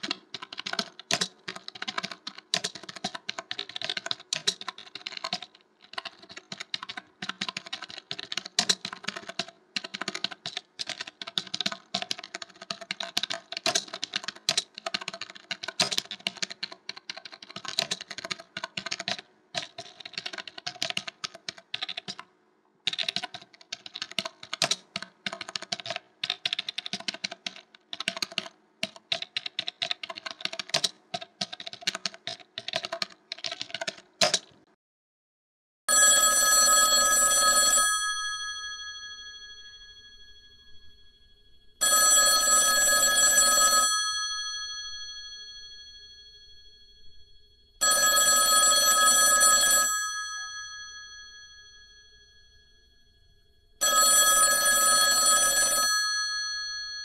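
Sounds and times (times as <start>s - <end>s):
keyboard typing: 0.0s - 34.7s.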